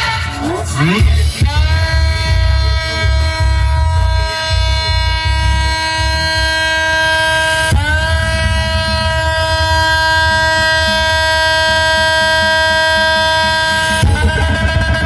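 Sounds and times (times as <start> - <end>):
buzzy horn-like synth note: 0.0 - 15.0
heavy bass: 0.0 - 15.0.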